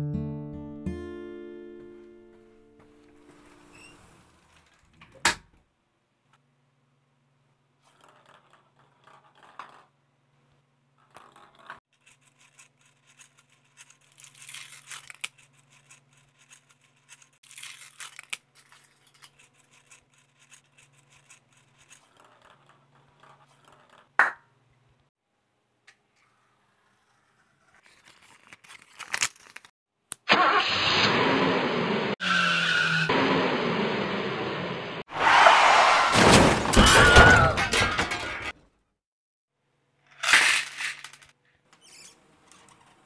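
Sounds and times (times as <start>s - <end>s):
foil wrapper crinkling and tearing: 11.9s - 22.6s, 27.8s - 29.7s.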